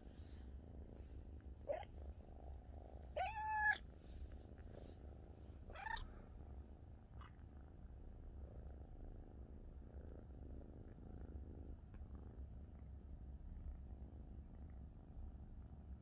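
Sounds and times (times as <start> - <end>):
kitten purring: 0.0 - 16.0
kitten meowing: 3.2 - 3.8.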